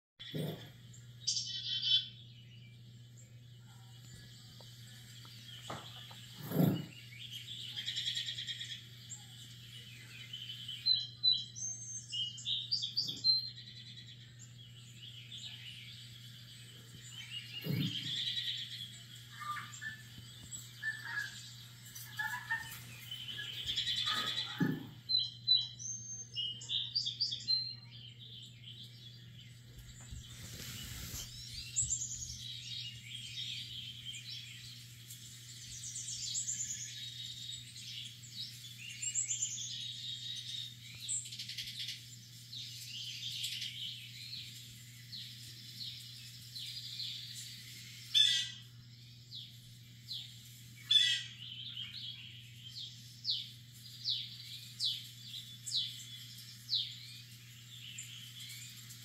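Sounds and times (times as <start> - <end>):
songbird chirps and calls: 0.2 - 59.0.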